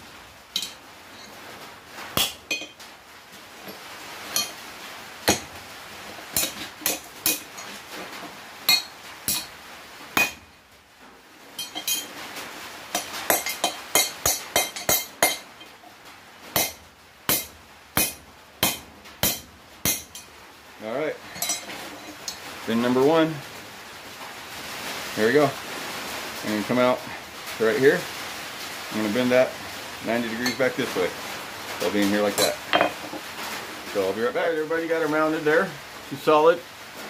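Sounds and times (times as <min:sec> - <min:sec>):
hammer striking steel on anvil: 0:06.4 - 0:07.5, 0:08.7 - 0:09.5, 0:10.2 - 0:10.4, 0:12.9 - 0:15.5, 0:16.6 - 0:20.3.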